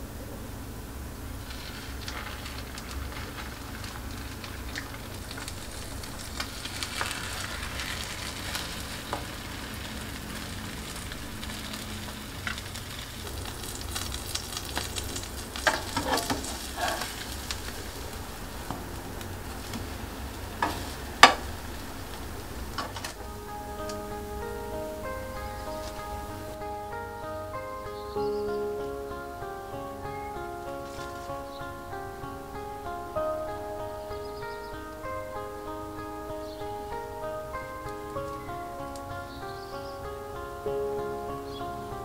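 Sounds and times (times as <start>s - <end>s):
butter sizzling in frying pan: 1.4s - 23.2s.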